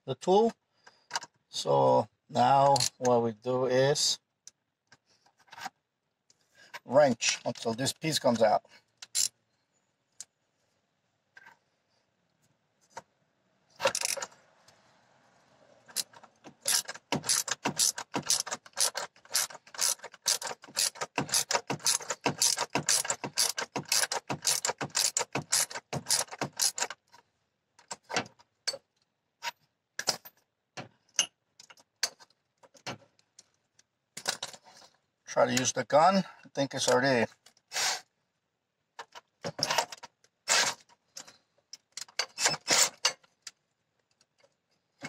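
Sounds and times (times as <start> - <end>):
ratchet wrench clicking: 13.8 - 14.2, 16.7 - 26.9.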